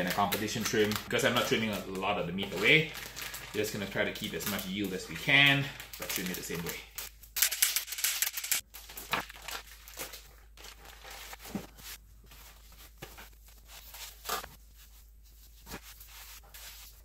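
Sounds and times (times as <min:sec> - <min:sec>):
plastic wrapping crinkling: 0:00.0 - 0:17.0.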